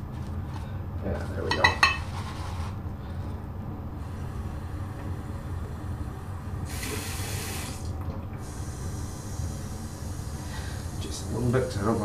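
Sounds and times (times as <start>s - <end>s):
steady low hum: 0.0s - 12.0s
water tap running: 6.6s - 12.0s.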